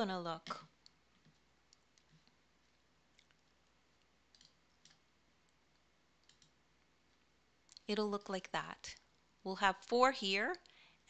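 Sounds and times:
faint clicks: 0:03.1 - 0:07.9.

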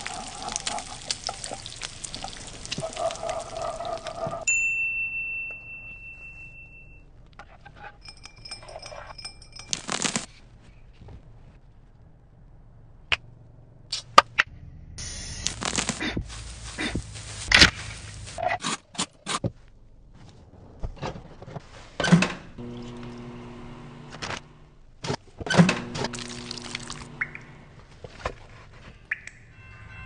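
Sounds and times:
rustling and scraping: 0:07.2 - 0:12.0, 0:15.4 - 0:22.1, 0:27.8 - 0:29.1
bowls and utensils knocking: 0:08.0 - 0:09.7.

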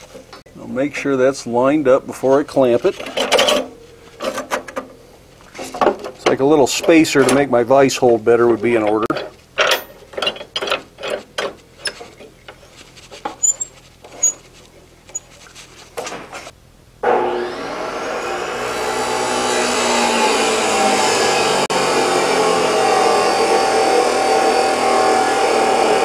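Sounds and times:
metal clicks and rattles of vise: 0:02.9 - 0:04.9, 0:09.0 - 0:12.6
chop saw motor whine: 0:17.0 - 0:26.0
cut-off wheel cutting steel: 0:17.0 - 0:26.0.

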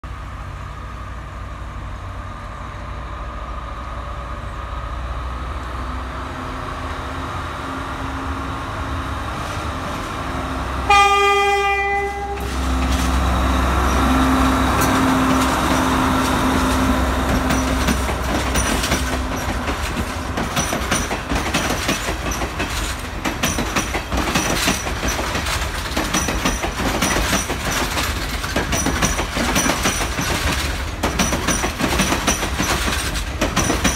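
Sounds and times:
train engine drone: 0:00.0 - 0:33.9
train horn blast: 0:10.8 - 0:12.8
wheels clicking over rail joints: 0:11.6 - 0:33.9.

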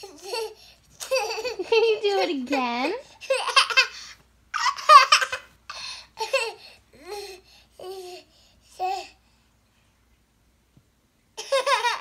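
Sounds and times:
toddler laughing: 0:00.0 - 0:01.8, 0:03.2 - 0:04.0, 0:04.6 - 0:05.5, 0:06.2 - 0:07.2, 0:11.4 - 0:12.0.

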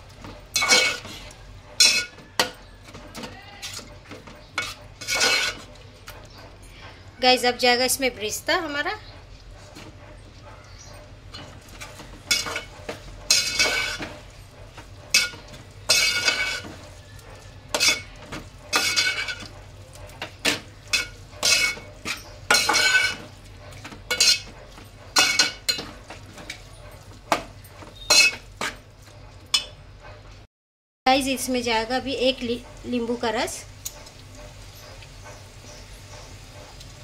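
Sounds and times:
metal turner clinking on pot: 0:00.2 - 0:06.2, 0:10.7 - 0:28.8.

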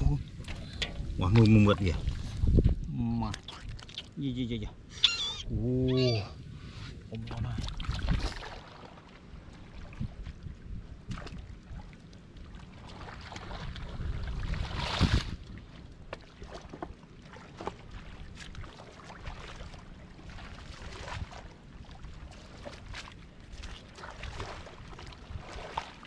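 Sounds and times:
hands splashing in muddy water: 0:17.3 - 0:26.0.

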